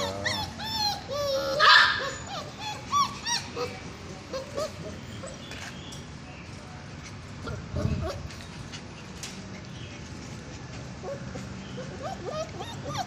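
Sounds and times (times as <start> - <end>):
puppies whining and yipping: 0.0 - 5.5, 7.4 - 8.7, 10.9 - 13.0.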